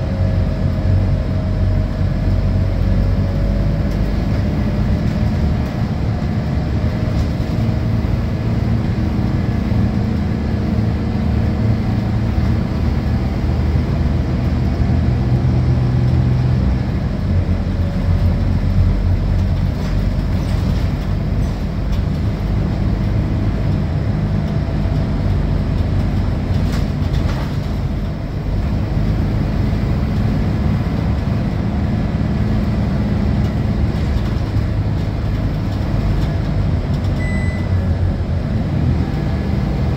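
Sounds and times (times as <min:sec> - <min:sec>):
bus diesel engine from inside: 0:00.0 - 0:39.9
road and body noise: 0:00.0 - 0:39.9.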